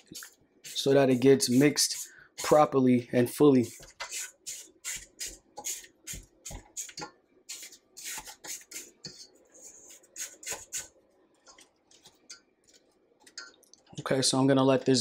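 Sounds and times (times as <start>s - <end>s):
spatula scraping metal bowl: 0.0s - 2.8s, 3.5s - 11.0s.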